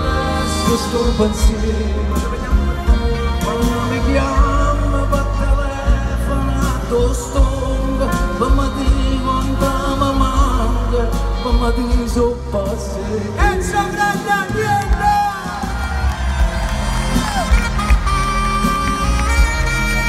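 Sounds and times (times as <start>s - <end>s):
live band music through speakers: 0.0s - 20.0s
lead melody gliding to high note: 15.7s - 20.0s.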